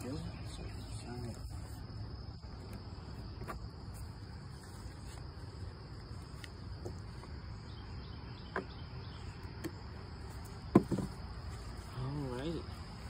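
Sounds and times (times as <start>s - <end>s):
insects trilling: 0.0s - 13.0s.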